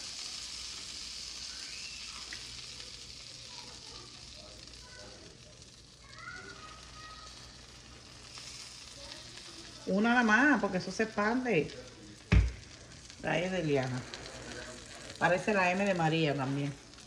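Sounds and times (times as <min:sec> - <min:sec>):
batter sizzling on a griddle: 0:00.0 - 0:17.0.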